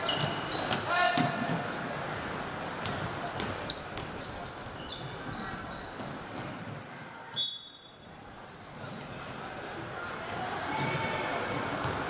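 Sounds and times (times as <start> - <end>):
basketball bouncing: 2.8 - 4.2.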